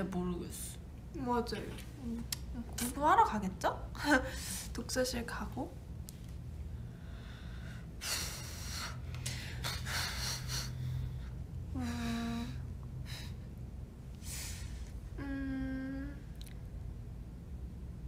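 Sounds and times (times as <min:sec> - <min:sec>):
low background hum: 0:00.0 - 0:18.0
woman humming: 0:11.7 - 0:12.8, 0:15.1 - 0:16.5.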